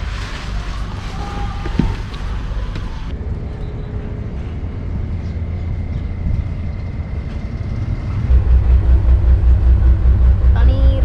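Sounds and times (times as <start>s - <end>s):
pulsing low throb: 3.2s - 11.0s
boat engine rumbling: 4.0s - 11.0s.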